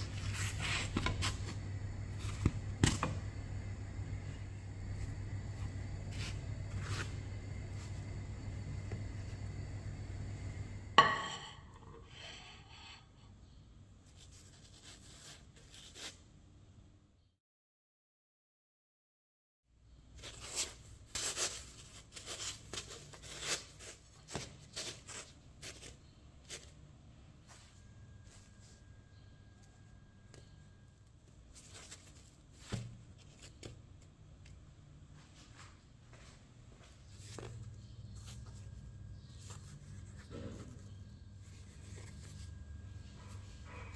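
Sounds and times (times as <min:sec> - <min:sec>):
hands patting soft bread: 0:00.0 - 0:03.4, 0:31.2 - 0:34.6
hand rustling bread: 0:00.0 - 0:09.9, 0:14.0 - 0:16.2, 0:20.1 - 0:43.9
low hum: 0:00.0 - 0:12.2.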